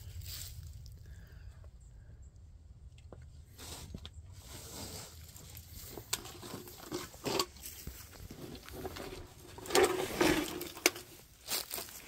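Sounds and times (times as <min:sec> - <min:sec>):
boots scuffing and scraping rock: 0:03.6 - 0:12.0.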